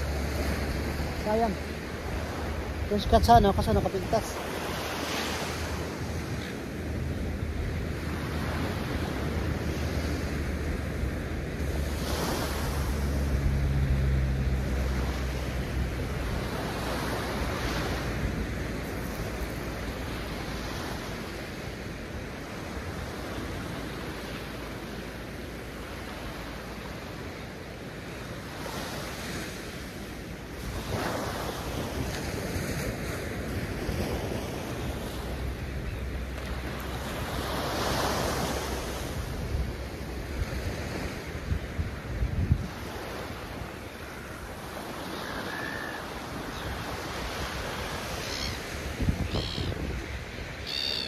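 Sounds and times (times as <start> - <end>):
ocean surf breaking: 0.0 - 51.0
wind buffeting microphone: 39.2 - 42.9, 48.8 - 50.6.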